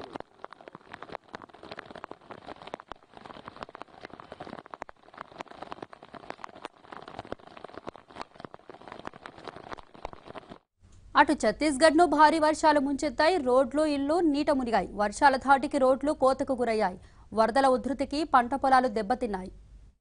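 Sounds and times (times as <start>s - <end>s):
rain patter: 0.0s - 10.6s.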